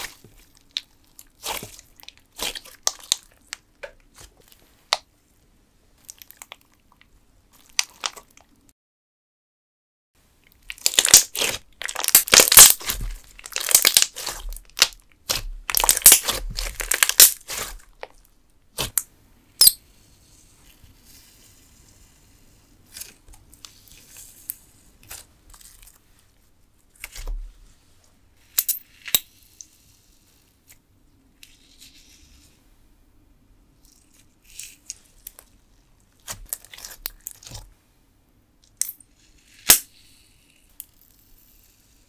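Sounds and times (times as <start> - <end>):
slime squelching and popping: 0.0 - 5.1, 7.6 - 8.6, 10.5 - 19.0, 36.2 - 37.7.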